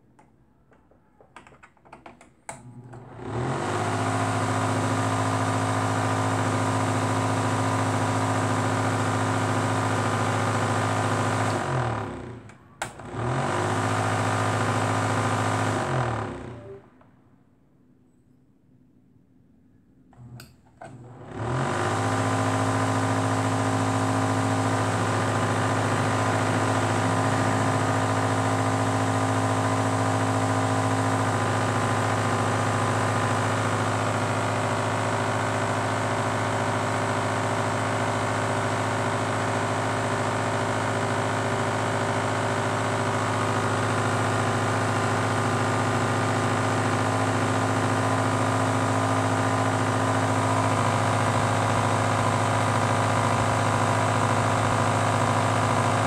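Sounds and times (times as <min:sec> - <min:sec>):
electrical motor hum: 0:00.2 - 0:17.0, 0:20.1 - 0:56.0.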